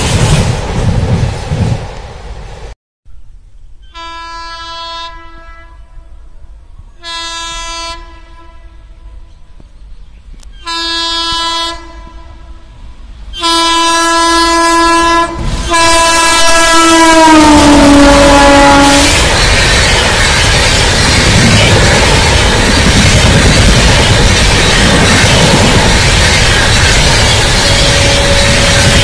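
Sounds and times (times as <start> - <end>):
train horn blasts: 3.8 - 6.3, 6.9 - 9.5, 10.6 - 19.3, 27.3 - 29.0.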